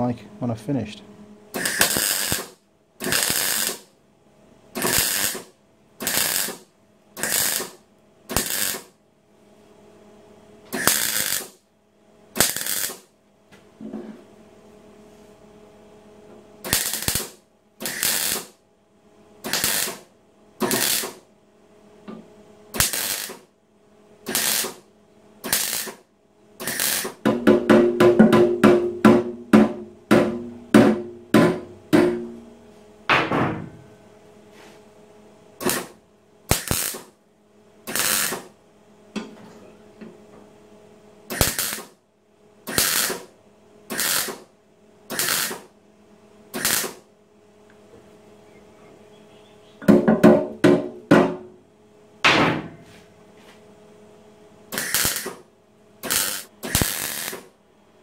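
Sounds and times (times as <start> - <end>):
welder arc crackle: 1.6 - 4.0, 4.8 - 9.0, 10.8 - 11.6, 12.3 - 13.1, 16.6 - 18.6, 19.4 - 21.2, 22.8 - 23.5, 24.3 - 26.0, 26.6 - 27.2, 35.6 - 37.2, 37.9 - 38.5, 41.3 - 42.0, 42.7 - 44.5, 45.1 - 45.7, 46.5 - 47.0, 54.7 - 55.4, 56.0 - 57.5.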